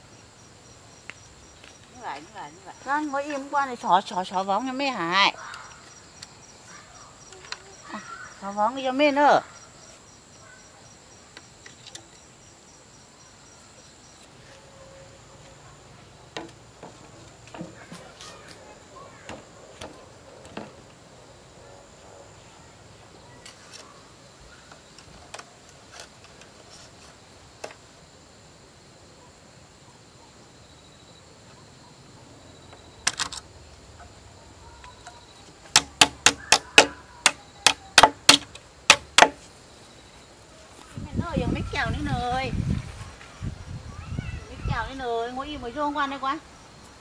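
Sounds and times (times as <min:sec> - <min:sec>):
knocks on bamboo: 0:16.4 - 0:18.1, 0:35.7 - 0:39.5.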